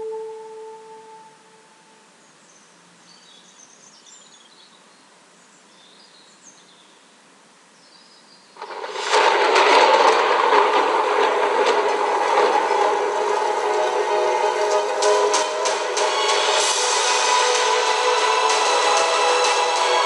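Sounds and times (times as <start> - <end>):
soft hiss: 0.0 - 20.0
heavy stone grinding rumble: 8.6 - 14.7.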